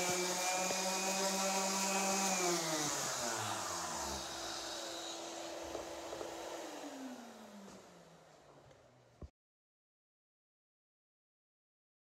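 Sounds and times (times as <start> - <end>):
orbital sander spinning down: 0.0 - 8.4
dust extractor hum: 0.0 - 8.8.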